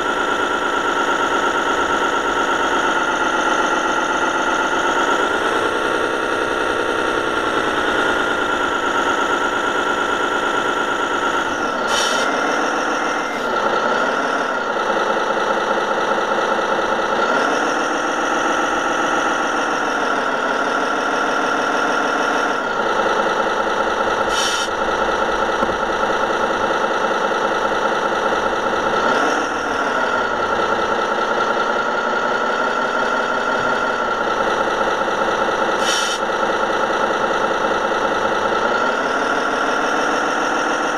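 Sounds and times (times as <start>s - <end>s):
simulated diesel truck engine: 0.0s - 40.9s
short hisses: 24.3s - 24.7s, 35.8s - 36.2s.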